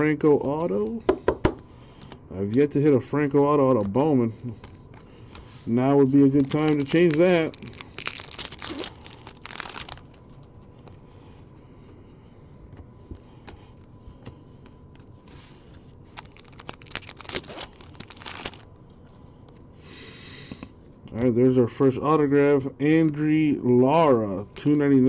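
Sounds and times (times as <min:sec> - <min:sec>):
cards being handled: 0:00.4 - 0:11.1, 0:12.6 - 0:19.6
wrapper crinkling and tearing: 0:06.0 - 0:10.4, 0:16.1 - 0:18.8.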